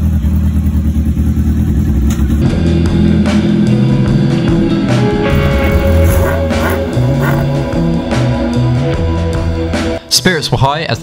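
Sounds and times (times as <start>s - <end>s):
motorcycle engine running: 0.0s - 8.6s
background music: 2.4s - 11.0s.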